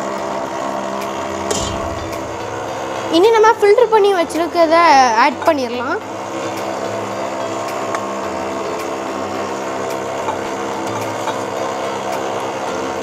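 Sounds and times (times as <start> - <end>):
stand mixer beating batter: 6.0 - 13.0.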